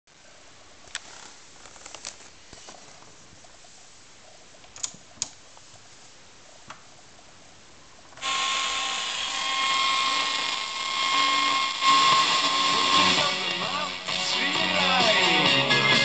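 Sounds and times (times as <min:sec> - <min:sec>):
radio whistling tones: 0:11.8 - 0:14.4
radio static hiss: 0:11.8 - 0:15.7.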